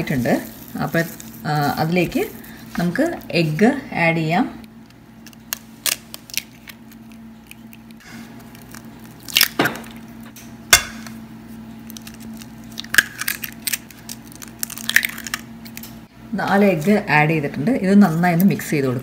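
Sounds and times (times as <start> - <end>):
eggshells cracking: 5.2 - 10.0, 11.8 - 15.9.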